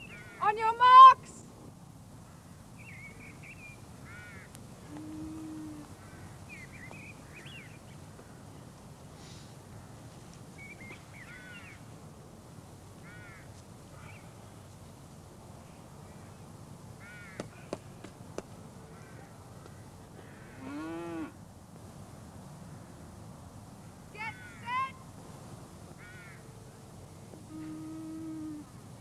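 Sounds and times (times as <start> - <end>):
low background noise: 0.0 - 29.0
crows cawing: 4.0 - 6.4, 11.3 - 11.8, 13.0 - 14.3, 17.0 - 17.8, 18.9 - 21.0, 24.3 - 24.7, 26.0 - 26.5
cow lowing: 4.8 - 6.0, 27.4 - 28.8.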